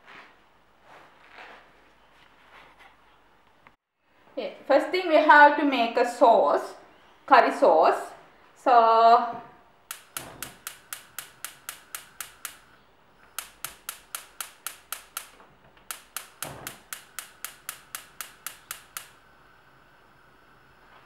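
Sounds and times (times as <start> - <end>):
gas burner lighting: 9.8 - 21.0
gas igniter clicking: 9.9 - 19.3.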